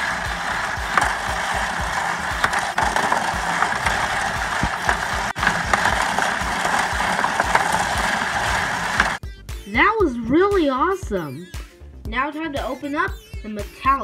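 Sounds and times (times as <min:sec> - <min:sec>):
plastic gears ratcheting: 0:00.0 - 0:09.2.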